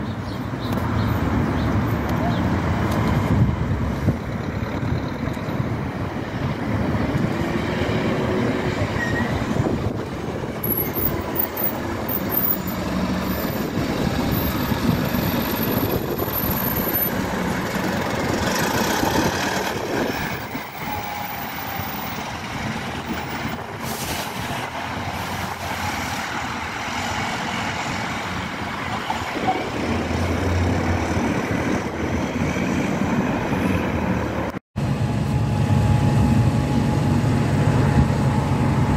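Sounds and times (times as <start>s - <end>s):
bus engines running: 0.0s - 38.9s
traffic rumble: 0.0s - 38.9s.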